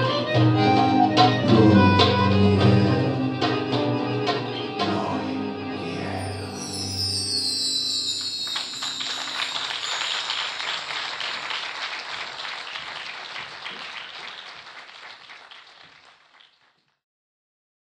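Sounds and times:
music closing notes: 0.0s - 10.7s
applause: 8.2s - 17.0s.

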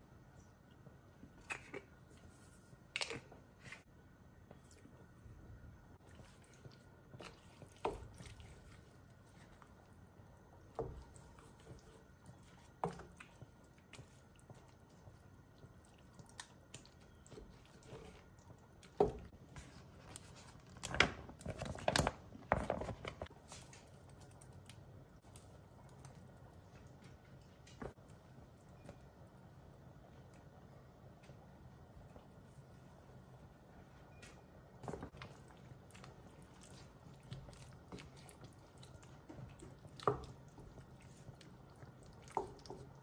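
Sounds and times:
wooden spoon stirring in pot: 6.0s - 20.6s, 34.8s - 43.0s.

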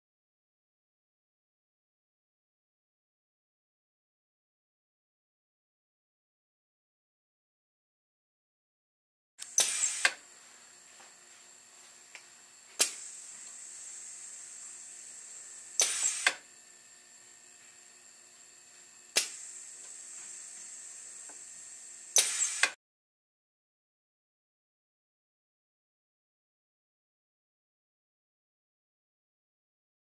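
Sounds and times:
pneumatic cylinder clack: 9.4s - 10.2s, 12.8s - 13.6s, 15.7s - 16.4s, 19.1s - 20.4s, 22.1s - 22.8s
faint air hiss: 9.4s - 10.9s, 11.8s - 16.5s, 18.6s - 22.8s.

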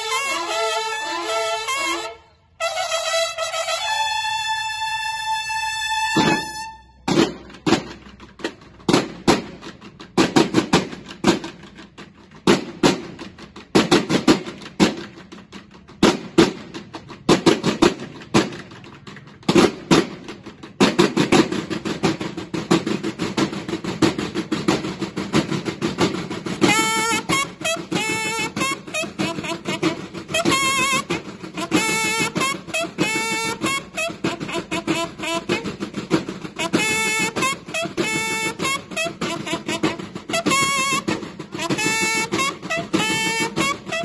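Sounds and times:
bugle notes: 0.0s - 7.0s, 26.2s - 44.0s
marching drums: 2.7s - 44.0s.

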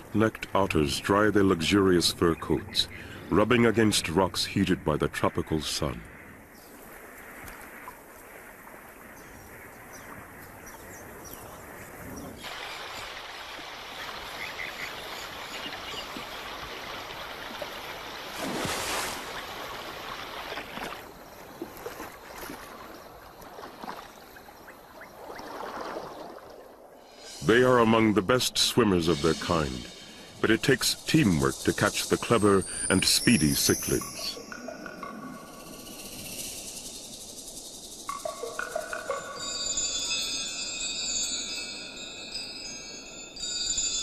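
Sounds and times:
water splashing against rocks: 12.4s - 26.8s.

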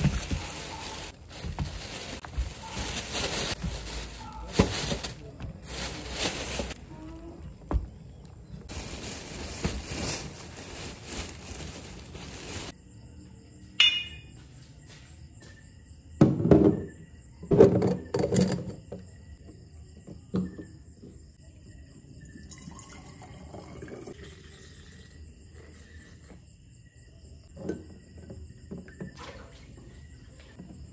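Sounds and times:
sharp clink: 13.8s - 14.3s.

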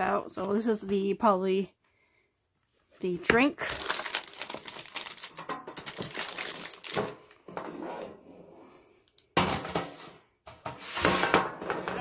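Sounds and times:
plastic packaging crinkling: 3.4s - 7.4s.

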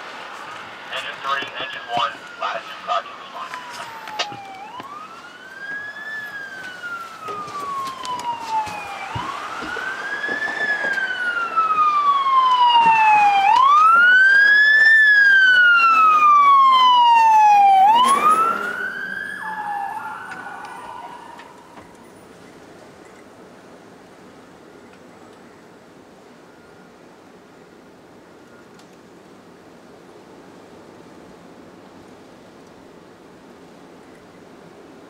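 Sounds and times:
fire engine siren wailing: 0.7s - 22.4s.

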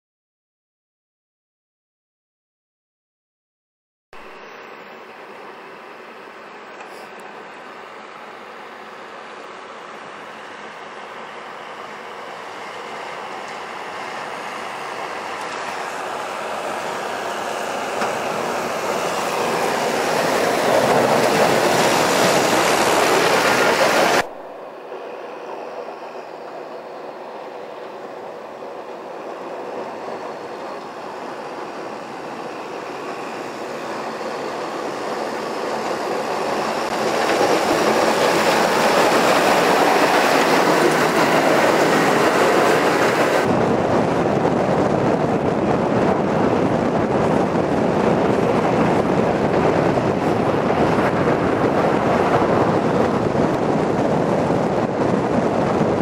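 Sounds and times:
tractor engine: 5.2s - 25.5s, 29.0s - 46.0s
snow pushed off plough blade: 12.0s - 24.5s.

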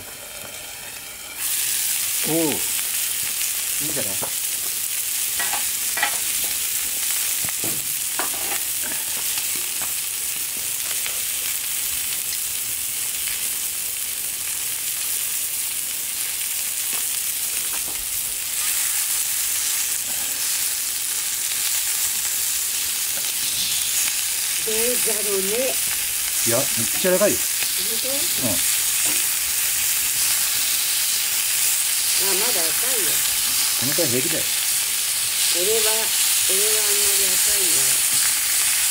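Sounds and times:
steak sizzling in a pan: 0.0s - 38.9s
wood fire crackling: 0.0s - 38.9s.

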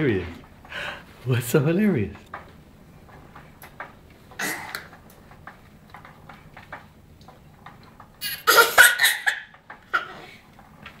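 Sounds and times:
baby laughing loudly: 8.2s - 10.2s.

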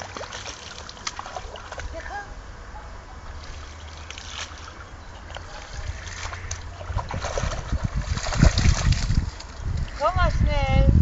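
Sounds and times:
dog splashing in water: 0.0s - 2.0s, 3.4s - 9.4s
wind rumbling on microphone: 4.7s - 11.0s.

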